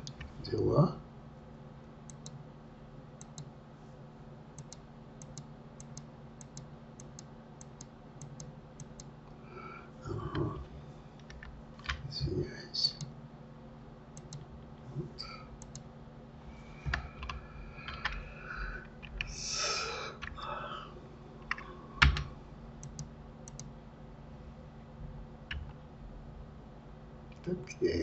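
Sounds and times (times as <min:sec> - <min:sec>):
low electrical hum: 0:00.0 - 0:28.0
mouse clicks: 0:02.1 - 0:02.4, 0:03.2 - 0:03.5, 0:04.6 - 0:09.1, 0:14.2 - 0:14.5, 0:15.6 - 0:15.8, 0:22.8 - 0:23.7.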